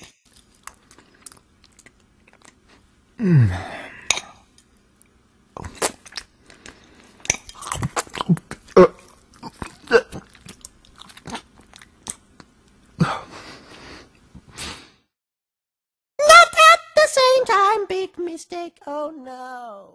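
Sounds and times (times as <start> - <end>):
person chewing and crunching food: 0.3 - 2.9, 4.1 - 12.9.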